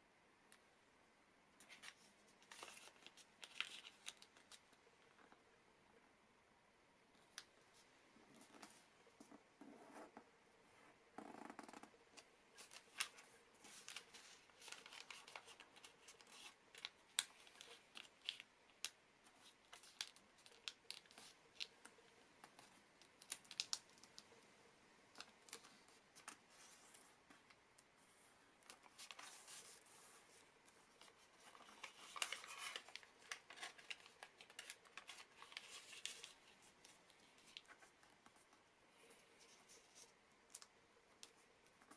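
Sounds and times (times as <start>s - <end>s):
paper crinkling and rustling: 1.6s - 4.8s, 12.2s - 24.2s, 28.6s - 41.9s.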